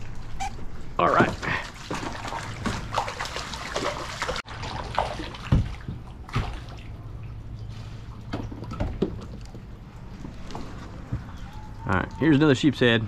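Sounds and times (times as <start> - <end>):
fish thrashing and splashing: 1.2 - 12.2.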